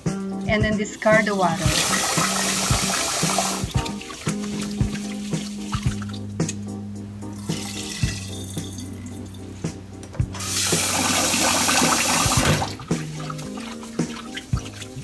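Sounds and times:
rice rinsed in water: 0:00.0 - 0:06.3, 0:10.4 - 0:15.0
soft background music: 0:00.0 - 0:15.0.

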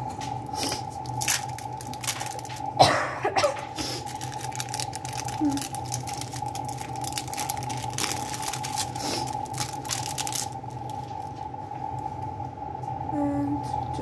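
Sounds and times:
low hum: 0:00.0 - 0:14.0
plastic film crinkling: 0:00.3 - 0:02.8, 0:03.6 - 0:11.5.

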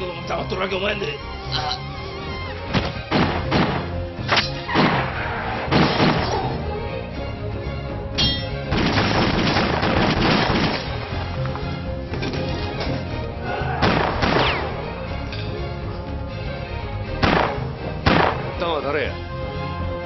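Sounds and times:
trailer music: 0:00.0 - 0:20.0
pistol shot: 0:02.8 - 0:06.3, 0:08.7 - 0:11.0, 0:13.8 - 0:14.7, 0:17.2 - 0:18.5.

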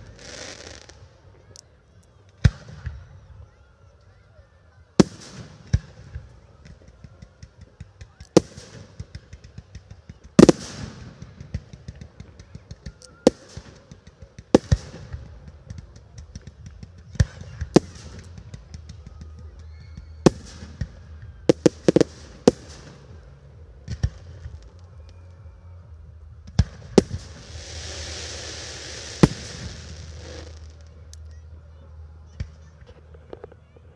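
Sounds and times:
fireworks crackling: 0:00.0 - 0:01.6, 0:05.0 - 0:31.4
fireworks bangs: 0:05.0 - 0:25.2, 0:26.4 - 0:31.2
steady hiss: 0:27.1 - 0:31.2.

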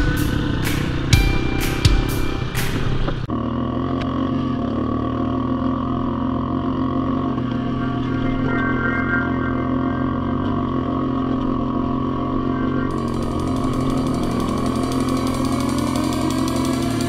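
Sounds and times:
atv engines running: 0:00.0 - 0:01.5, 0:02.4 - 0:17.0
engine revving: 0:00.0 - 0:17.0.

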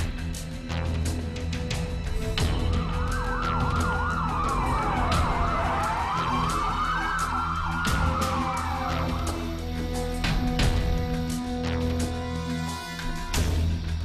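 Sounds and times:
background music with percussion: 0:00.0 - 0:14.0
siren wailing: 0:02.4 - 0:11.6
siren yelping: 0:02.6 - 0:10.4.

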